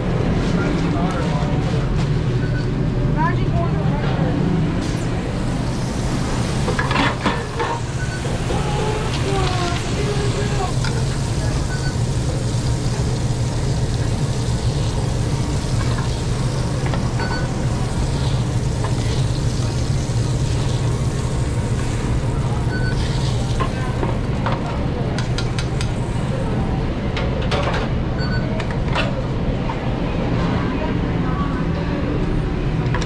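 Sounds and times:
low drone of kitchen hood: 0.0 - 33.0
sausage patties sizzling on grill: 5.6 - 24.0.

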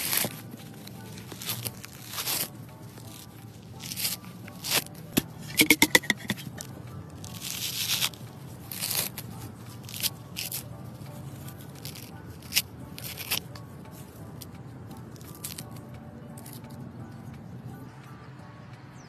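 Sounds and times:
coconut husk tearing: 0.0 - 14.5, 15.1 - 15.8.

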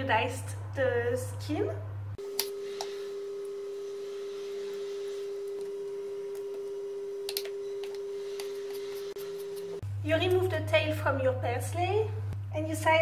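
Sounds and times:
steady electronic sine tone: 2.2 - 9.8.

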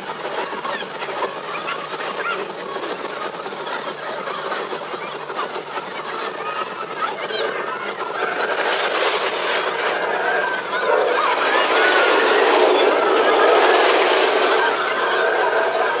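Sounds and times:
roller coaster rattling on track: 0.0 - 16.0.

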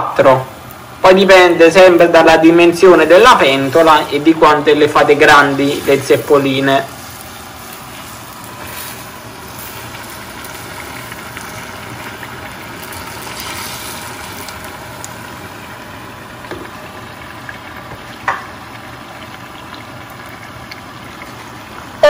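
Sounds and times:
oil bubbling and sizzling: 0.0 - 22.0.

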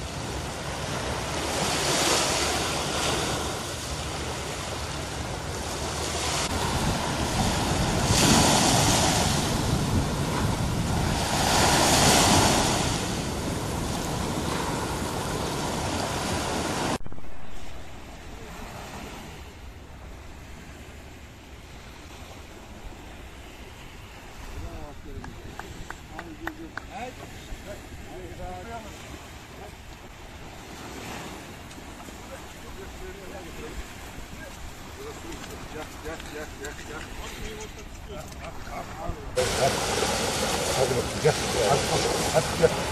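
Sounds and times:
wind on microphone: 0.0 - 20.1
sea surf washing over rocks: 0.0 - 42.9.

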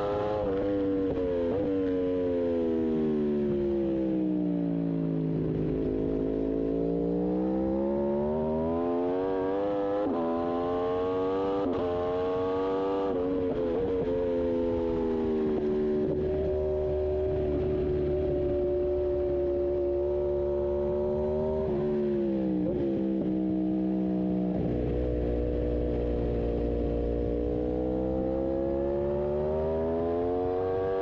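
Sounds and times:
motorcycle engine revving: 0.0 - 4.2, 5.1 - 31.0.

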